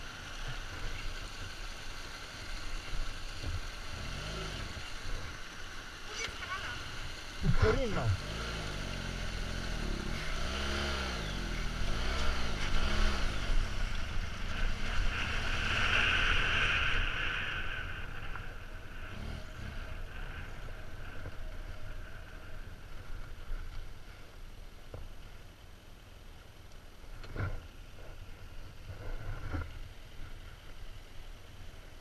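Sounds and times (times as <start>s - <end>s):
motorcycle engine revving: 3.5s - 5.5s, 6.4s - 22.6s.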